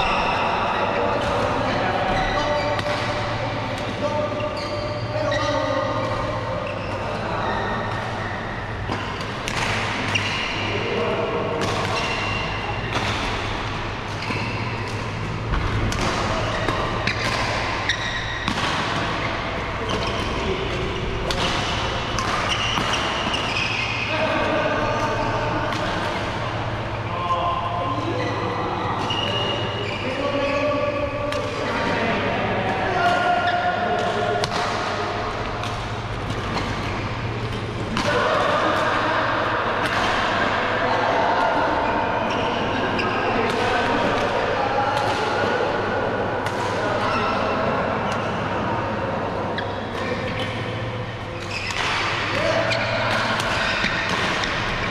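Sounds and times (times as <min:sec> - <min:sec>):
distant voices echoing: 0:00.0 - 0:54.9
low hum of busy sports hall: 0:00.0 - 0:54.9
rackets hitting shuttlecocks: 0:07.8 - 0:24.0, 0:33.0 - 0:40.7, 0:51.4 - 0:54.9.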